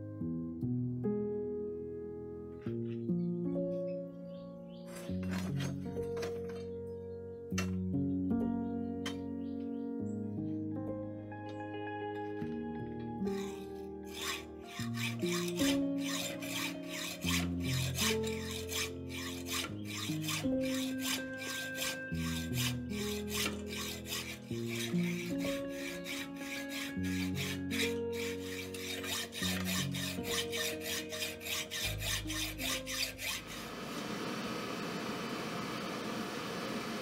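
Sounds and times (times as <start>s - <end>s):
background music: 0.0s - 33.6s
hacksaw cutting steel: 4.9s - 6.7s, 13.2s - 34.4s.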